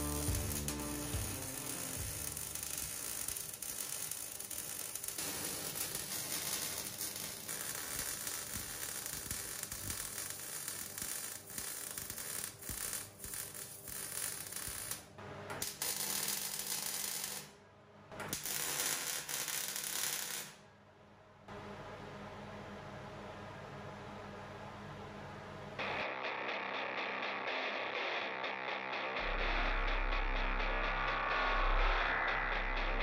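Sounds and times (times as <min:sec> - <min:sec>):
welding arc crackling: 0:00.0 - 0:17.5, 0:18.4 - 0:20.6.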